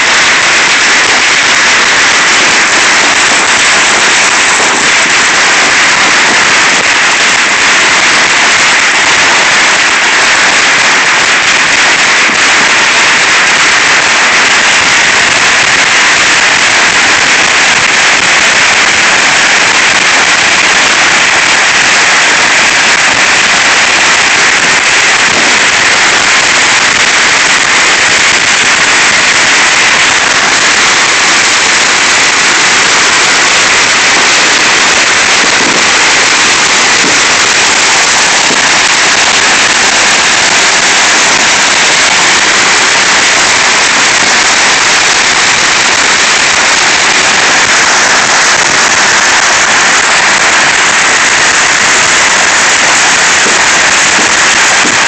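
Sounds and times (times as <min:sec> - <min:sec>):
fireworks crackling: 0:00.0 - 0:55.0.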